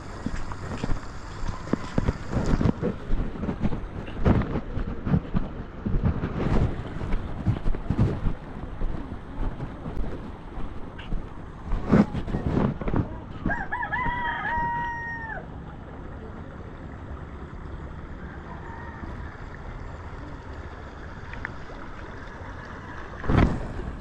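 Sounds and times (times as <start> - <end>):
wind gust on microphone: 0.0 - 15.1
rooster crowing: 13.5 - 15.4, 18.2 - 19.5.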